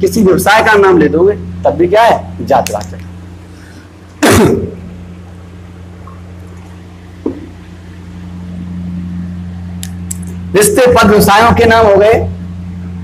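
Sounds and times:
low electrical hum: 0.0 - 13.0
small click: 9.8 - 10.4.

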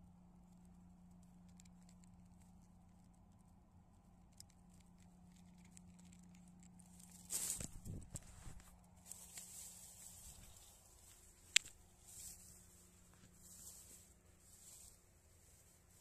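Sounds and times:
faint low hum: 0.0 - 16.0
camera handling rustle: 7.1 - 12.4
light ticks: 11.0 - 12.3.

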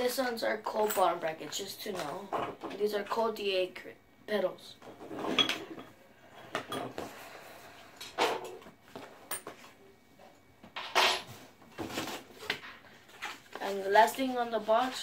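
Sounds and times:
plastic bags rustling: 11.8 - 15.0.

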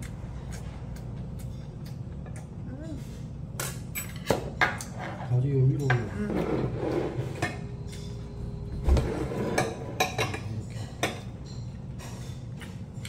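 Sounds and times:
utensils clinking in metal bowl: 9.4 - 13.0.

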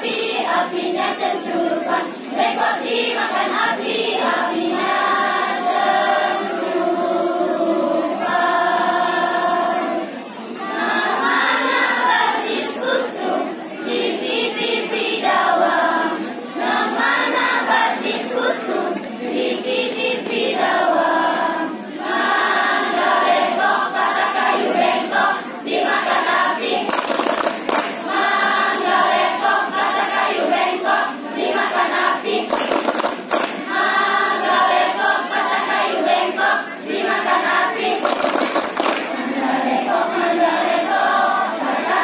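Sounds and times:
children's choir singing: 0.0 - 42.0
short bursts of noise: 26.8 - 28.2, 32.4 - 33.7, 37.9 - 39.2.

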